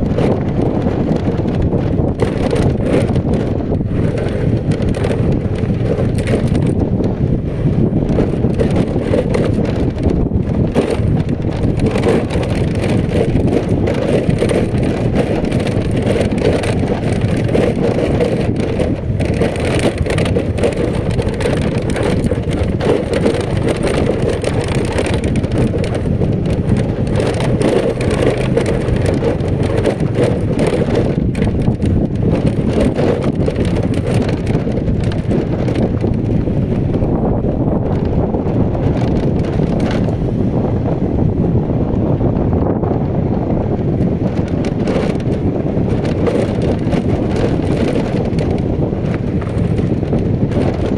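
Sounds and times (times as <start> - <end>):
vehicle running: 0.0 - 50.9
wheels on gravel: 0.0 - 50.9
wind buffeting microphone: 0.0 - 50.9.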